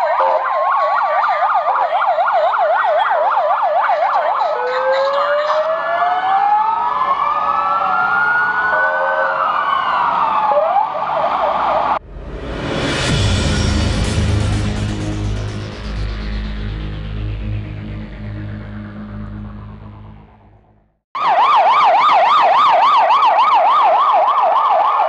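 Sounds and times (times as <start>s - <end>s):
ambulance sirens: 0.0s - 12.0s, 21.1s - 25.0s
music: 12.1s - 20.9s.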